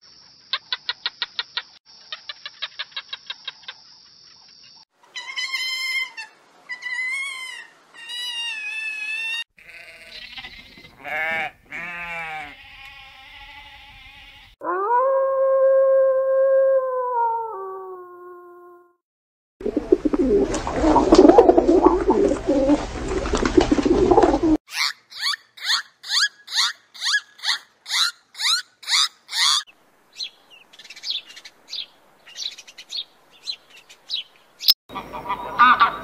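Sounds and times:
sheep bleating: 9.6s - 14.6s
wolf howl: 14.6s - 18.9s
short wavering calls: 24.7s - 36.0s.

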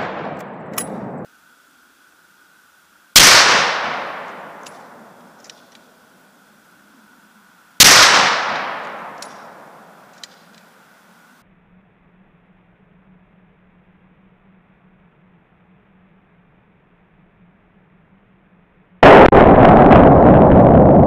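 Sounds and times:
rifle shots with echo: 0.0s - 1.2s, 3.2s - 5.2s, 7.8s - 10.0s.

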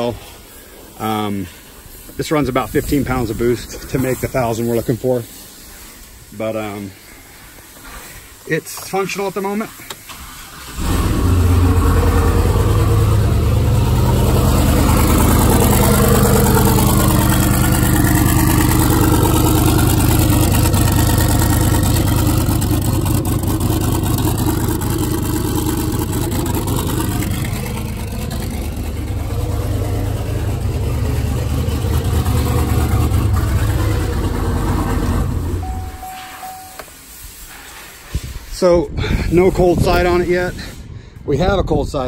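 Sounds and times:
engine idling: 9.8s - 36.8s.

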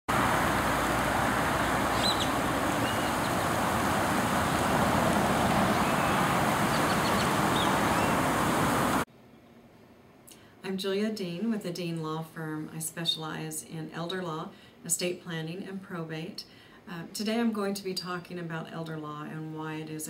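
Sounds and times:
fountain spray splashing on water: 0.1s - 9.1s
faint bird chirps: 1.6s - 3.6s, 5.7s - 8.2s.

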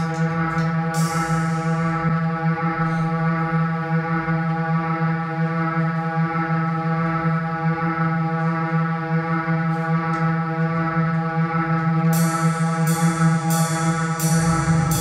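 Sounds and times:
low drone with overtones: 12.1s - 15.0s
crisp high-pitched strikes: 13.1s - 15.0s.

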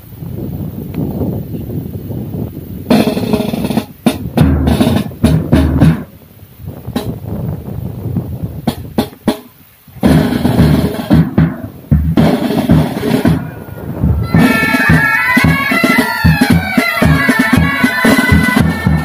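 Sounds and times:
snare tenor and bass drums: 2.8s - 19.0s
bagpipes: 14.2s - 19.0s.

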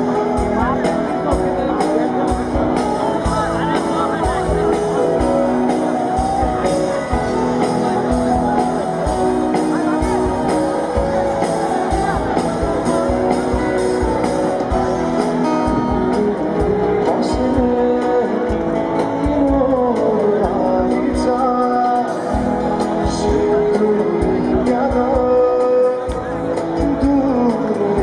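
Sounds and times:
live rock band: 0.0s - 28.0s
man singing: 10.8s - 28.0s.

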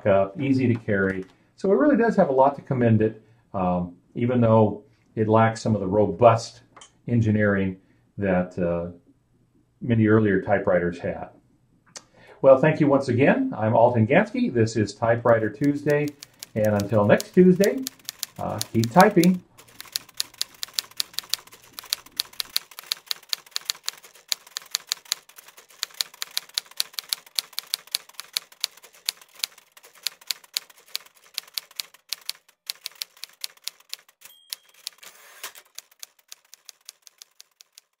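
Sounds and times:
typewriter typing: 15.2s - 38.0s
typewriter carriage return: 15.3s - 38.0s
typewriter margin bell ding: 33.7s - 35.8s.

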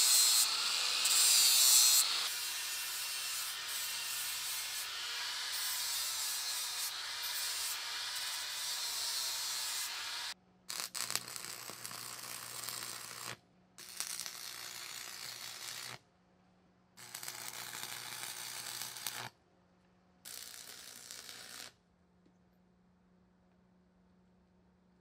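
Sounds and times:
welding arc crackling: 0.0s - 16.0s, 17.0s - 19.3s, 20.3s - 21.8s.

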